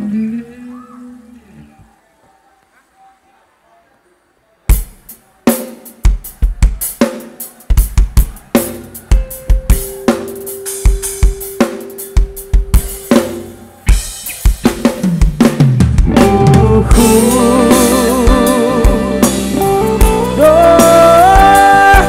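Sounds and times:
rock drum kit playing: 0:04.7 - 0:22.0
held instrument note: 0:09.1 - 0:14.1.

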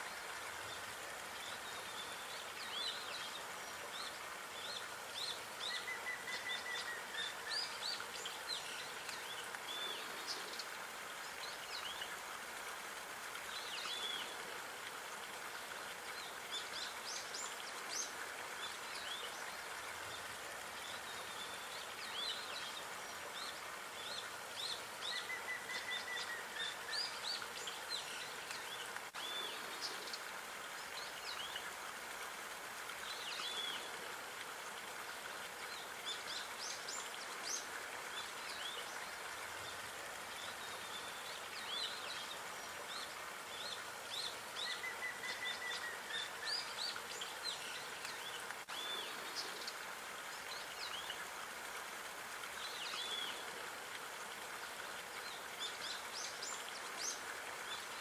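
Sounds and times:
background hiss: 0:00.0 - 0:58.0.

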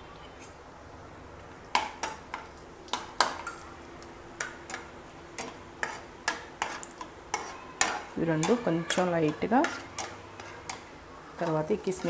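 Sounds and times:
nuts frying in a pan: 0:00.6 - 0:12.0.

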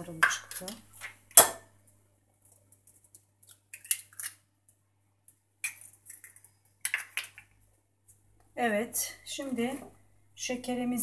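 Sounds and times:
eggshell cracking: 0:02.4 - 0:07.6.

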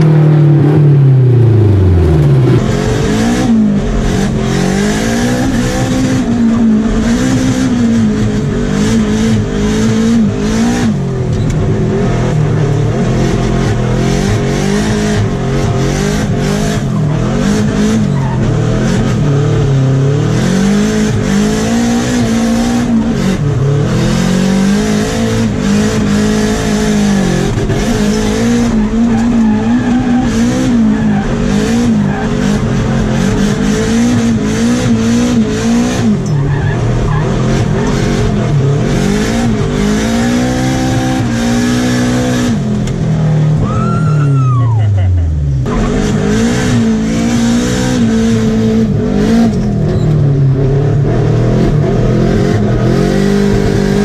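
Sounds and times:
car engine revving: 0:00.0 - 0:54.0
tyres squealing: 0:28.0 - 0:32.7.

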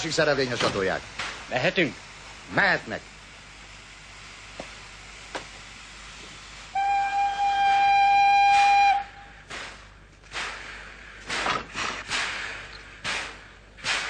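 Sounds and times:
train whistle long note: 0:06.7 - 0:09.4.

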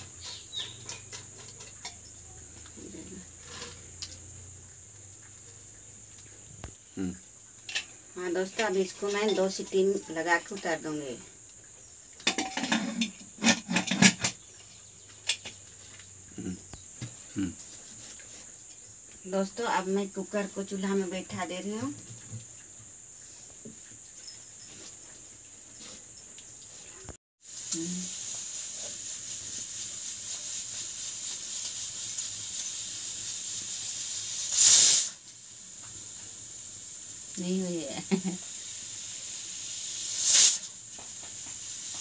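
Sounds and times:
crickets chirring: 0:00.0 - 0:42.0
wood fire hissing: 0:27.1 - 0:42.0.

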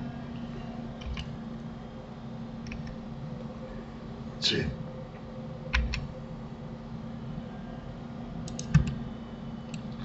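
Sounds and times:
faint steady hum: 0:00.0 - 0:10.0
keyboard and mouse clicking: 0:08.4 - 0:09.0.

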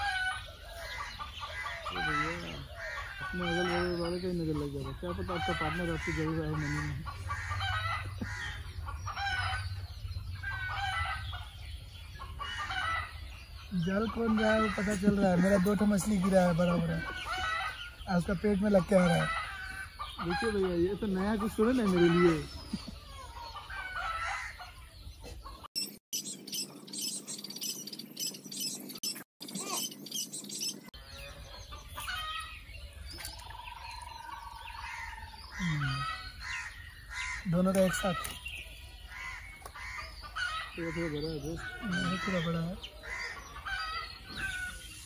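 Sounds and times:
chickens clucking: 0:00.0 - 0:45.0.

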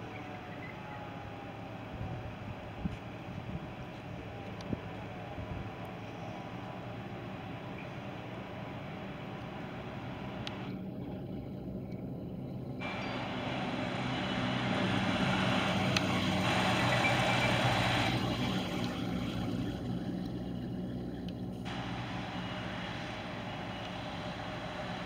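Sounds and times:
fire engine passing by: 0:00.0 - 0:25.0.

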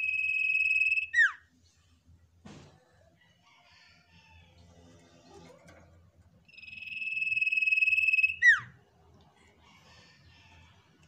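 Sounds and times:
bird trilled whistle: 0:00.0 - 0:01.4, 0:06.5 - 0:08.8.

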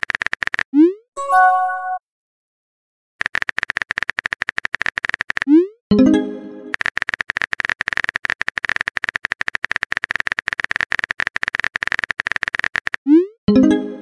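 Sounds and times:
phone keyboard typing clicks: 0:00.0 - 0:00.7, 0:03.2 - 0:05.6, 0:06.7 - 0:13.1
short chiming tone: 0:01.2 - 0:02.0.

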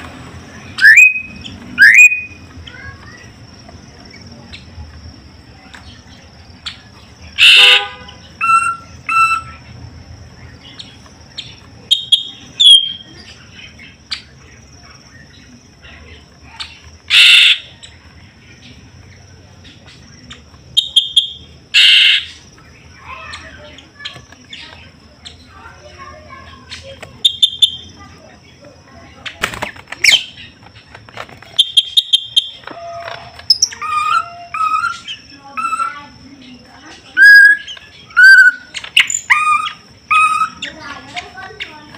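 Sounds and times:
bird calling: 0:00.0 - 0:41.9
bird wings fluttering: 0:29.4 - 0:30.2.

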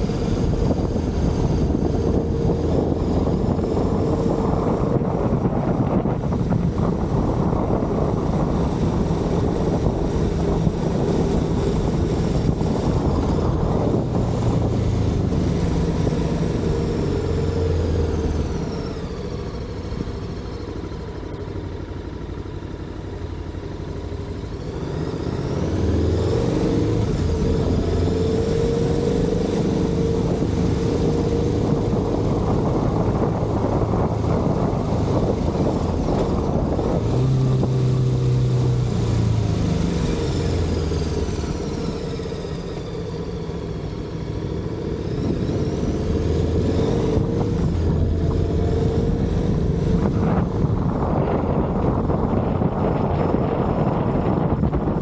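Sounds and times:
motorcycle engine running: 0:00.0 - 0:55.0
wind rushing: 0:45.2 - 0:55.0.

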